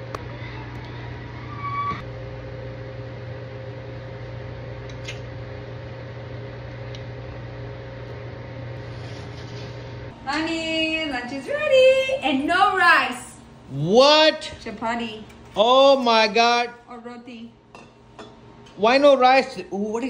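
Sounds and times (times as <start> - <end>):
appliance fan motor humming: 0.0 - 20.0
woman speaking: 10.2 - 13.5, 14.4 - 15.3, 16.8 - 17.6.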